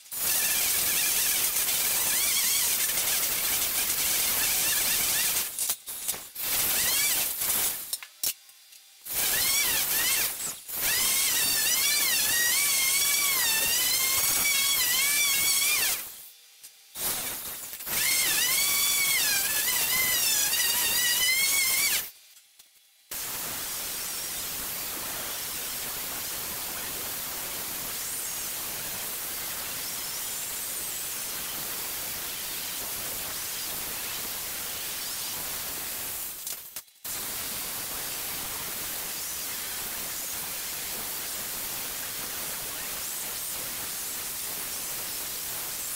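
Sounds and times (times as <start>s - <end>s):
angle grinder grinding hiss: 0.1s - 8.0s, 9.1s - 16.3s, 17.0s - 22.2s.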